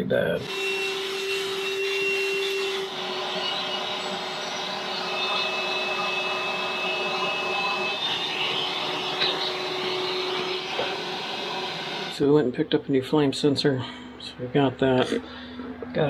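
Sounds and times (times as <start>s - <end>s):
vacuum cleaner running: 0.4s - 12.2s.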